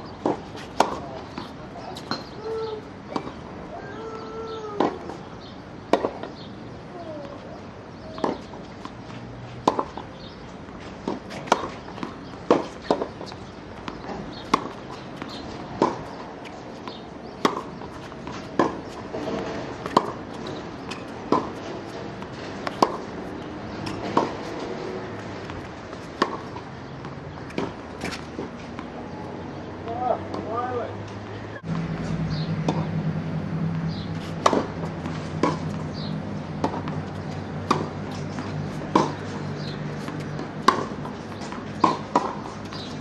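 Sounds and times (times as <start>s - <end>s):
racket striking tennis ball: 0.2s - 2.5s, 8.2s - 8.6s, 9.6s - 10.1s, 11.0s - 28.9s, 31.6s - 43.0s
tennis ball bouncing: 0.2s - 3.4s, 5.9s - 6.3s, 7.2s - 43.0s.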